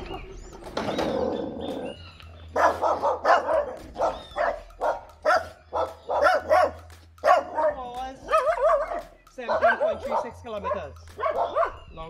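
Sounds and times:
dog barking: 0:02.5 - 0:11.9.

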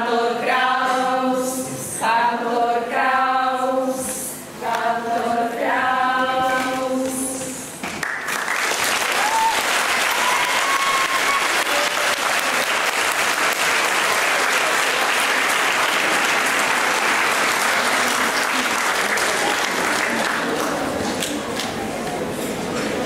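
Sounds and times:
audience applauding: 0:08.0 - 0:21.8.

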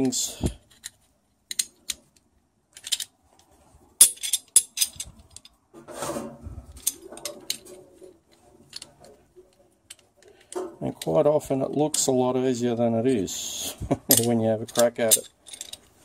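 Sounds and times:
metal joint parts clicking: 0:00.0 - 0:05.6, 0:06.7 - 0:12.2, 0:14.0 - 0:16.0.

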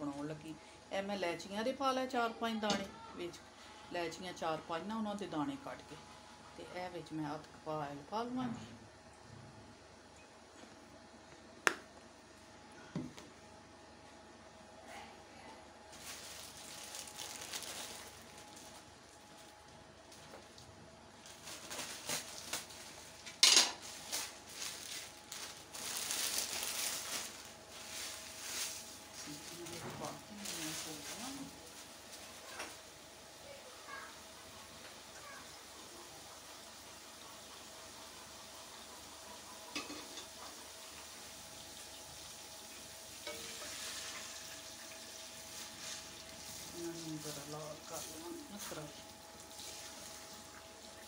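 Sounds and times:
noodles sizzling in a pot: 0:15.8 - 0:51.0
metal utensils clinking on a pot: 0:23.4 - 0:23.8, 0:39.7 - 0:40.3.

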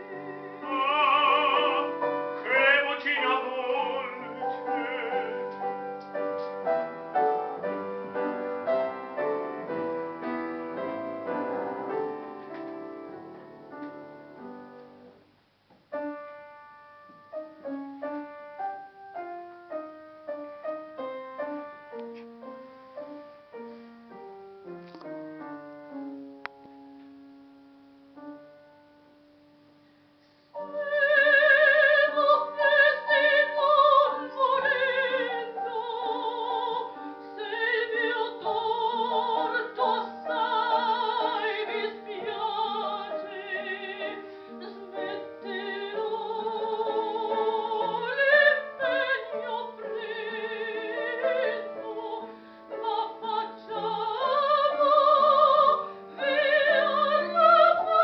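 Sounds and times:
soprano singing operatically: 0:00.0 - 0:05.7, 0:30.6 - 0:58.0
soft piano: 0:00.0 - 0:58.0.

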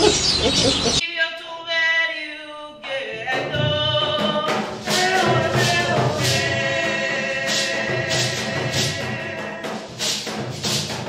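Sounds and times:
person singing: 0:01.0 - 0:09.9
percussion beat: 0:03.3 - 0:11.0.

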